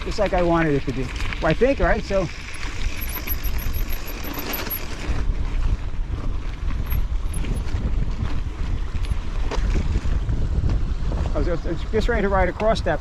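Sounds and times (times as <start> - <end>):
bike clicks and rattles: 0.0 - 10.8
wind buffeting microphone: 4.8 - 13.0.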